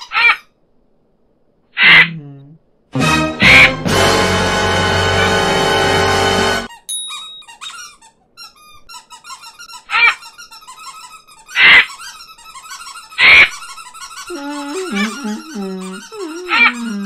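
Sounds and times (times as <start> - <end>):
loud short bird squawks: 1.8 - 2.1
deeper bird voice wavering: 1.8 - 2.6, 14.3 - 17.0.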